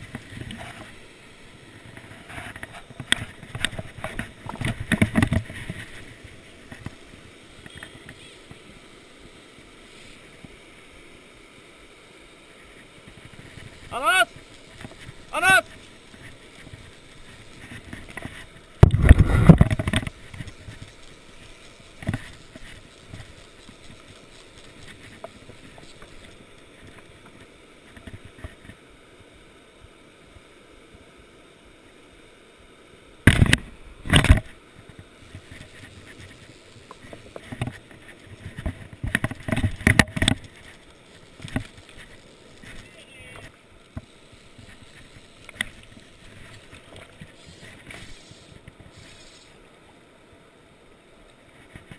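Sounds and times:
river rapids rushing: 12.4 - 26.9
bumps and rubbing on microphone: 14.7 - 27.0.

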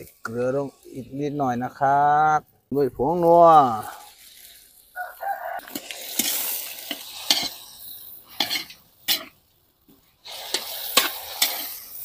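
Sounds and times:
chicken sizzling in hot oil: 3.2 - 12.0
metal ladle scraping a wok: 3.4 - 9.4, 10.0 - 12.0.

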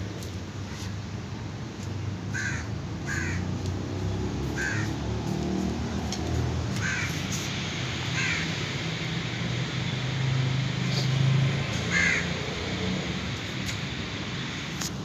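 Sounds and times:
crows cawing: 2.3 - 3.6, 4.5 - 5.0, 6.8 - 7.2, 8.1 - 8.6, 11.7 - 12.8.

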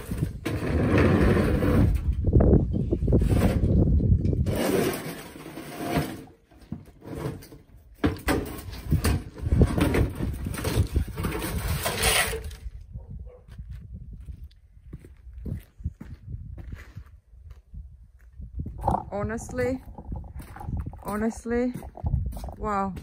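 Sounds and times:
scraping: 8.4 - 12.7.

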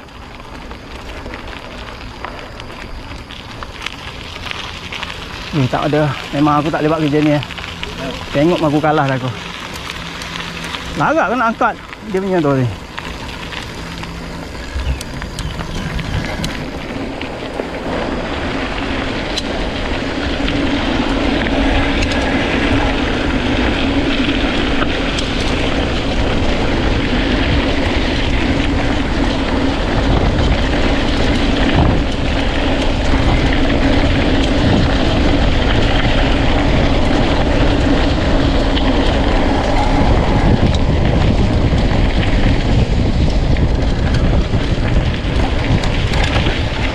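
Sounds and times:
tyre rumble on dirt trail: 0.0 - 46.9
wind on camera microphone: 10.9 - 46.9.

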